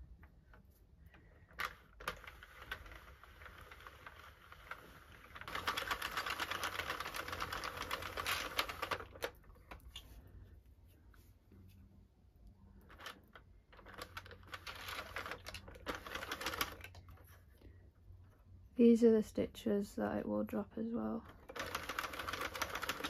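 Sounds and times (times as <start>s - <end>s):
knitting machine clicking clatter: 1.1s - 9.8s, 12.8s - 17.3s, 21.2s - 23.0s.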